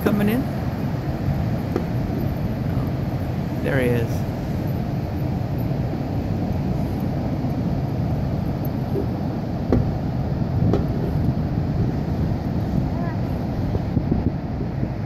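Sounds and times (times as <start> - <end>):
ocean surf breaking: 0.0 - 15.0
wind buffeting microphone: 0.0 - 15.0.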